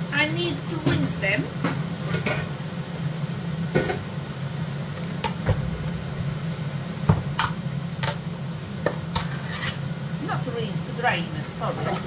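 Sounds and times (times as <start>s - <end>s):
steady low hum: 4.1s - 11.0s.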